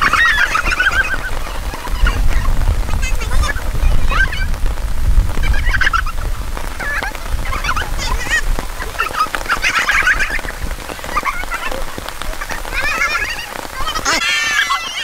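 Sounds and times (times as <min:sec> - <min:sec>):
women squealing and laughing: 0:00.0 - 0:04.6, 0:05.4 - 0:15.0.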